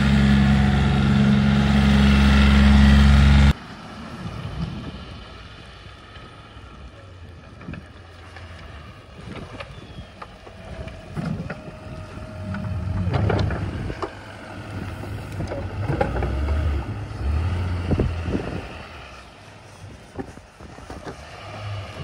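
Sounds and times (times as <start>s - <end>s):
snow plow engine running: 0.0s - 22.0s.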